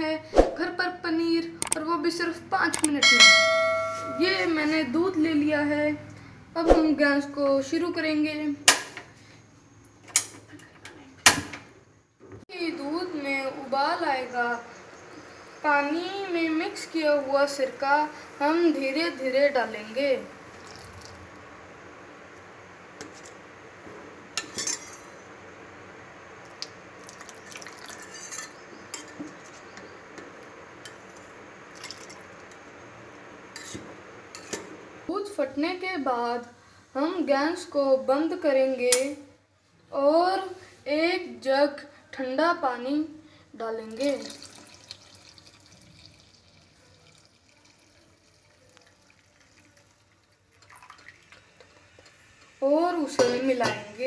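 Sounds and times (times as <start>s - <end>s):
faint water pouring into pot: 20.4s - 21.3s, 27.0s - 28.4s, 31.2s - 32.5s, 43.9s - 52.2s
liquid splashing and dripping: 27.0s - 28.0s, 44.1s - 51.5s
spoon scraping a metal pot: 27.8s - 29.7s.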